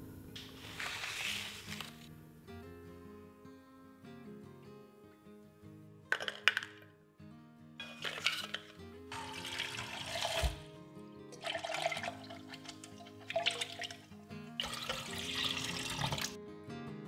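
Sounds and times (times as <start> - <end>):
soft background music: 0.0 - 17.0
tap water running into jug: 7.9 - 10.6, 11.4 - 16.4
water poured into steel sink: 8.0 - 10.6, 11.4 - 16.4.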